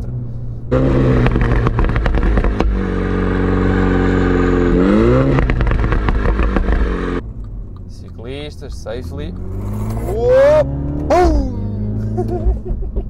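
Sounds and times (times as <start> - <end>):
car exhaust crackling and popping: 0.0 - 10.2
car engine revving: 0.0 - 12.7.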